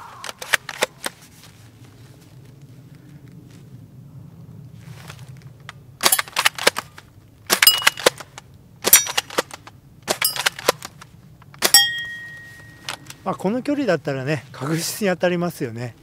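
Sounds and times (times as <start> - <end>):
rifle bolt clacking: 6.0 - 13.2
pellet pinging on steel plate: 11.7 - 12.8.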